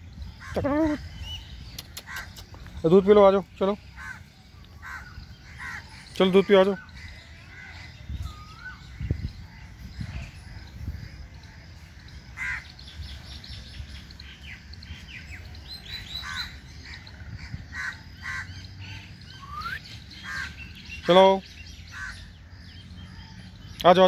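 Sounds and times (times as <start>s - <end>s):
birds chirping and whistling: 0.0s - 24.0s
crows cawing: 4.0s - 6.2s, 12.4s - 12.8s, 16.2s - 19.1s, 20.2s - 20.8s, 21.9s - 22.4s.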